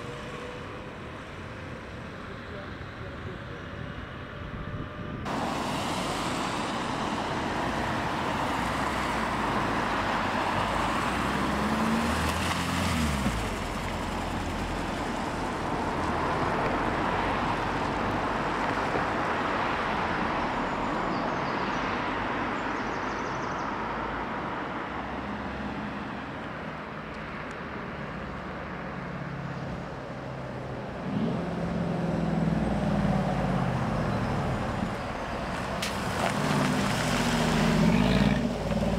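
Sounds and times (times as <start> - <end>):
car engines passing: 0.0 - 38.9
tyres hissing on wet road: 5.3 - 16.6, 32.9 - 38.9.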